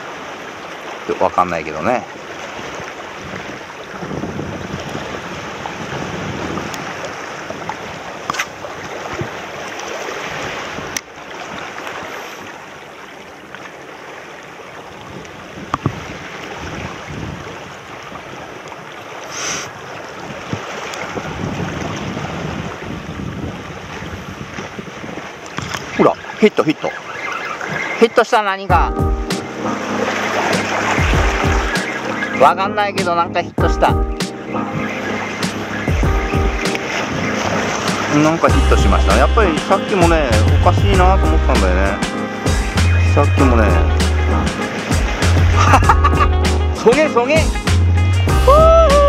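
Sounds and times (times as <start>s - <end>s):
small waves washing over rocks: 0.0s - 28.4s, 36.7s - 38.5s
wind on microphone: 2.6s - 12.6s, 14.9s - 26.4s, 28.9s - 32.3s, 33.6s - 39.2s.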